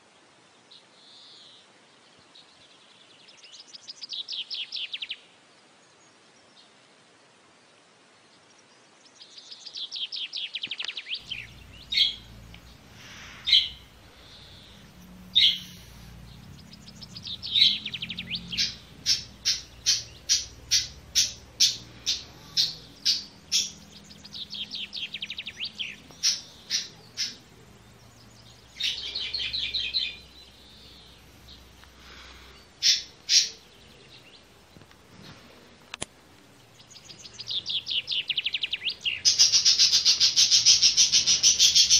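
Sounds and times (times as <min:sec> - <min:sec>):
buzzy chick chirps: 0:11.2 - 0:27.4.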